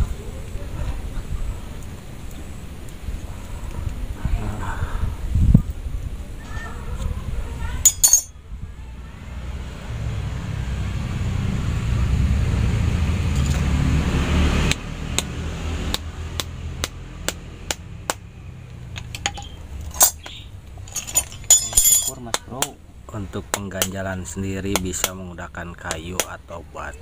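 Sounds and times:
knife clicking and tapping on wood: 0:23.5 - 0:24.0, 0:24.7 - 0:25.2, 0:25.9 - 0:26.3.

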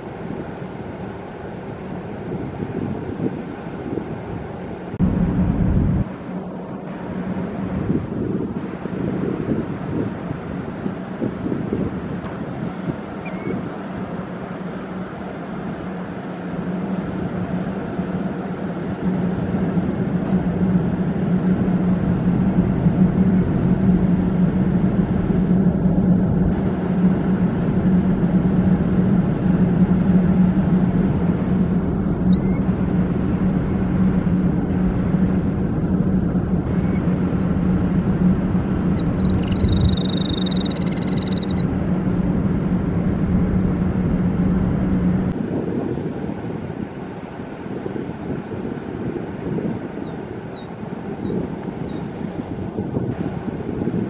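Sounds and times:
steady low hum: 0:00.0 - 0:54.0
killdeer calling: 0:13.2 - 0:13.7, 0:32.3 - 0:32.7, 0:36.7 - 0:37.5, 0:38.8 - 0:41.7, 0:49.6 - 0:52.1.

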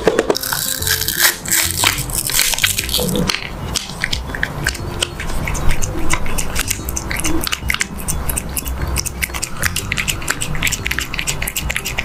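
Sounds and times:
cat licking yogurt: 0:03.8 - 0:12.0.

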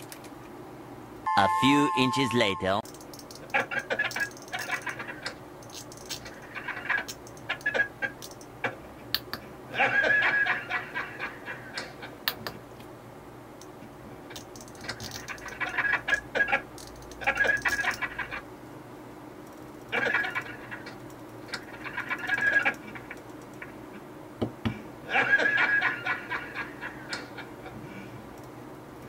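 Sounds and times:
rotary encoder clicking: 0:14.3 - 0:15.6.

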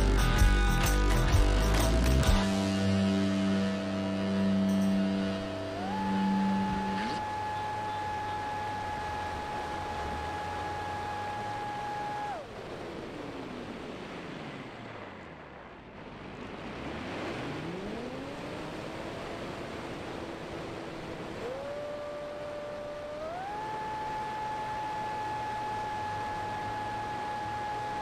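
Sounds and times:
electric motor whine: 0:03.0 - 0:12.5, 0:17.4 - 0:28.0
rushing wind: 0:05.1 - 0:28.0.

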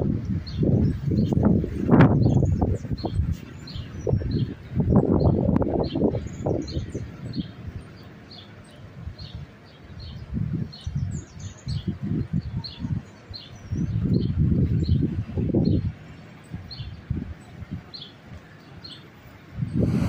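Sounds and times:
wind buffeting microphone: 0:00.0 - 0:08.1, 0:08.9 - 0:20.0
birds chirping: 0:00.2 - 0:20.0.

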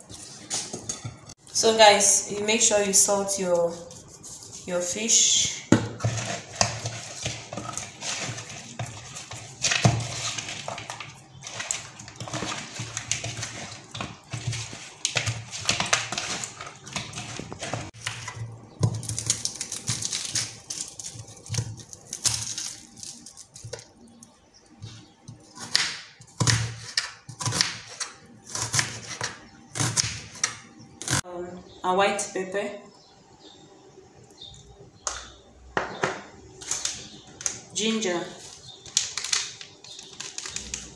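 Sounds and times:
hands rubbing salt into fish: 0:03.3 - 0:05.4.

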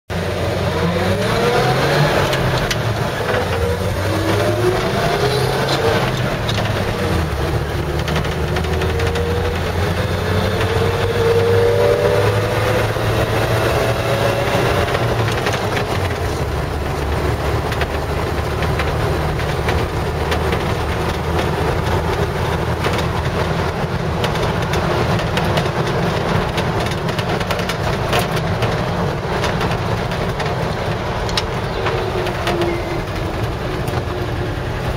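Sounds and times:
road noise: 0:00.1 - 0:34.9
truck engine revving: 0:00.1 - 0:34.9.

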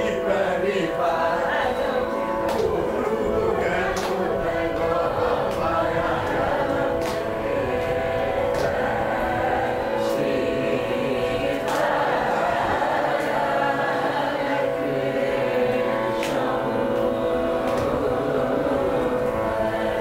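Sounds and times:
group singing in unison: 0:00.0 - 0:20.0
hand claps: 0:02.4 - 0:02.8, 0:03.8 - 0:10.4, 0:11.4 - 0:12.3, 0:12.9 - 0:14.5, 0:15.1 - 0:20.0.

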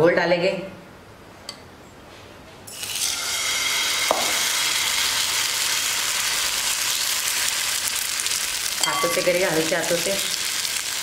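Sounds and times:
batter sizzling in a hot pan: 0:02.7 - 0:11.0.

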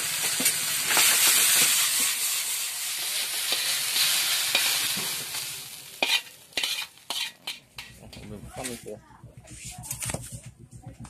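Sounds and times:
noodles sizzling in a wok: 0:00.0 - 0:08.1
metal spatula scraping pan: 0:06.0 - 0:08.8.

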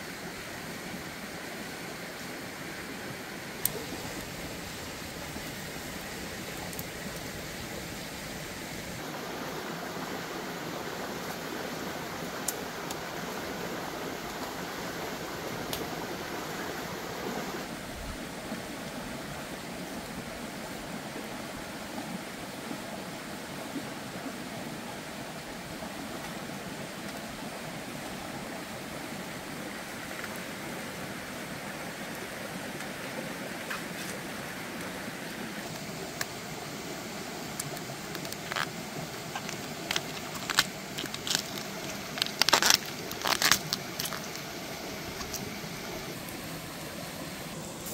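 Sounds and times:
steady rushing outdoor noise: 0:00.0 - 0:20.8, 0:28.9 - 0:47.9
faint sharp crackles: 0:37.5 - 0:45.5.

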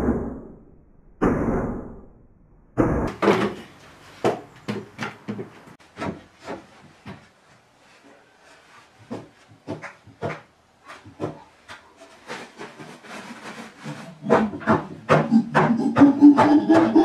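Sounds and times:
wooden knocks and bumps: 0:03.1 - 0:07.4, 0:09.0 - 0:12.0, 0:14.2 - 0:17.0.

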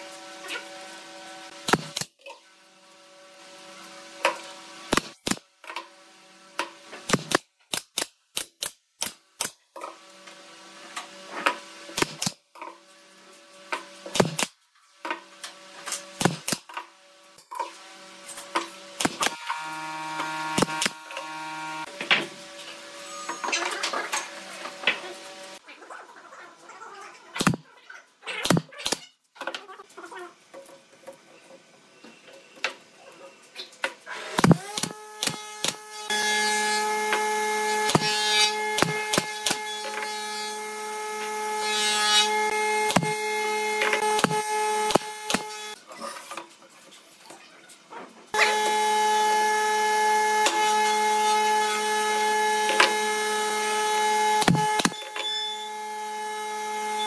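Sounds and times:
nail gun firing into wood: 0:01.6 - 0:02.1, 0:04.9 - 0:05.4, 0:07.1 - 0:09.6, 0:12.0 - 0:12.4, 0:14.1 - 0:14.5, 0:16.2 - 0:16.7, 0:19.0 - 0:21.2, 0:27.4 - 0:27.6, 0:28.4 - 0:29.0, 0:34.3 - 0:35.9, 0:37.8 - 0:39.8, 0:42.8 - 0:43.2, 0:43.8 - 0:45.7, 0:54.3 - 0:55.2.

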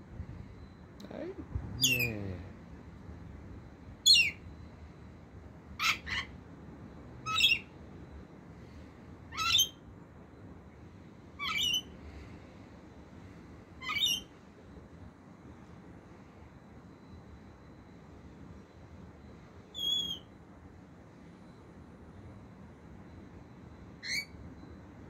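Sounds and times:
parrot screeching calls: 0:05.8 - 0:06.3, 0:07.2 - 0:07.7, 0:09.3 - 0:09.8, 0:11.4 - 0:11.9, 0:13.8 - 0:14.3, 0:19.8 - 0:20.2, 0:24.0 - 0:24.3.

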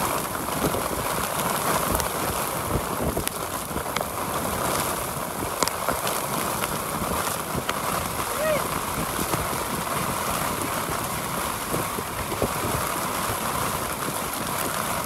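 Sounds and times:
hail ticking: 0:00.0 - 0:15.0
storm wind and rain: 0:00.0 - 0:15.0.

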